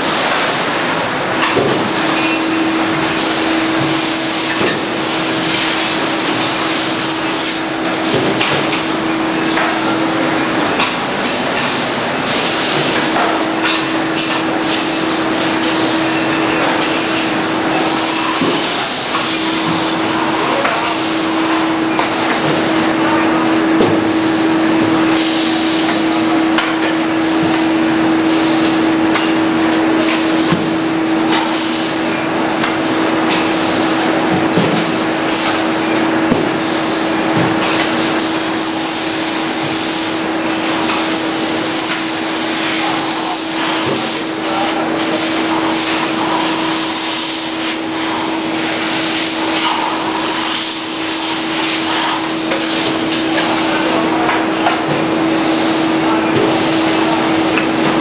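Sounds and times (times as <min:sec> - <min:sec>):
steady machine hum: 0:00.0 - 0:58.0
loud steady hiss: 0:37.8 - 0:54.7.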